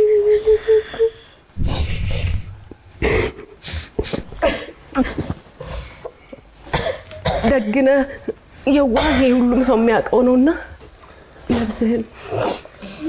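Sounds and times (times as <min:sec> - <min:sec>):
woman crying: 0:00.0 - 0:02.3
heavy shaky breaths: 0:00.4 - 0:04.4.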